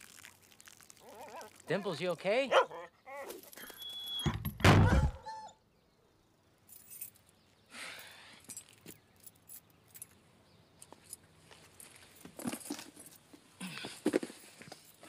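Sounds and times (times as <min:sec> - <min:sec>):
dog barking: 0:02.5 - 0:02.9.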